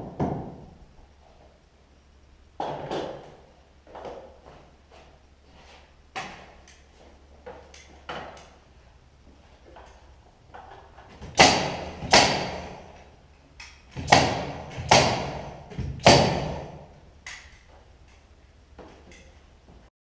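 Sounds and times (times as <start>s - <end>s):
nail gun shots echoing: 11.3s - 13.0s, 13.8s - 17.5s.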